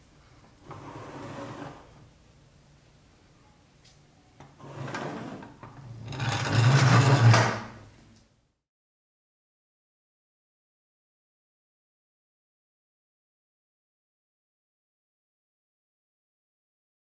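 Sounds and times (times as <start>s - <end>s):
toy truck rolling on workbench: 4.6s - 7.8s.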